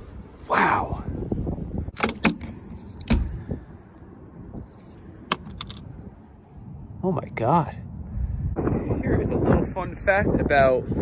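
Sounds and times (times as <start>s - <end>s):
wind rumble on microphone: 0.0s - 11.0s
sharp clicks and knocks: 1.9s - 3.3s.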